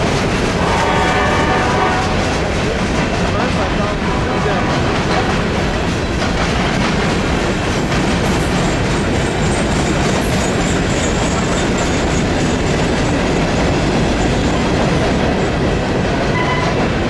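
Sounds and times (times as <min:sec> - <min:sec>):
train wheels rolling on rails: 0:00.0 - 0:17.0.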